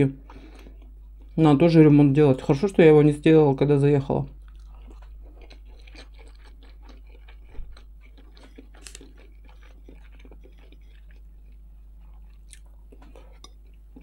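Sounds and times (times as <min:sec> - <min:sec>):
faint low hum: 0:00.0 - 0:14.0
person chewing: 0:00.2 - 0:01.6, 0:04.3 - 0:14.0.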